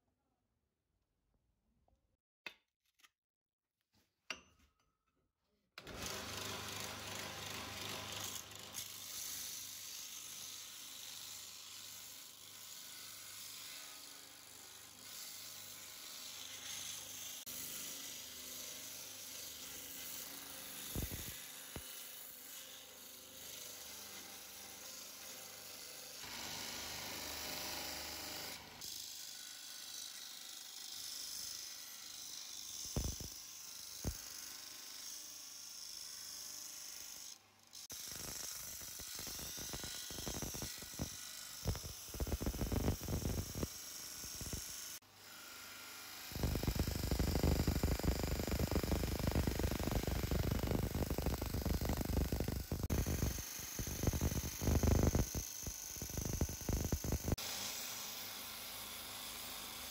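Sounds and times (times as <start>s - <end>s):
scribe scratching steel: 37.8s - 45.0s, 46.3s - 57.6s.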